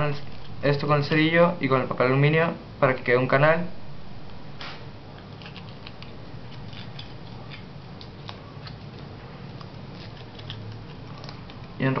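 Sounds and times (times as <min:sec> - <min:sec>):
steady low hum: 0:00.0 - 0:12.0
aluminium foil crinkling: 0:05.2 - 0:12.0.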